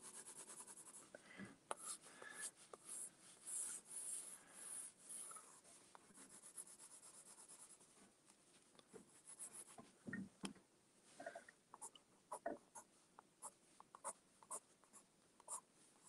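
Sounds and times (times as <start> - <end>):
pencil scratching on paper: 0.0 - 1.1, 2.7 - 5.6, 6.2 - 7.9, 9.2 - 9.8, 11.8 - 15.7.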